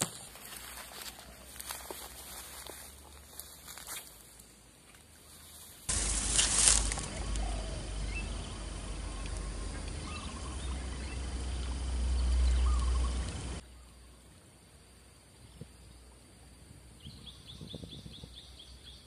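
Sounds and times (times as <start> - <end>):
bird calls: 6.0 - 14.2, 17.0 - 19.0
wind rumble on microphone: 16.6 - 18.8.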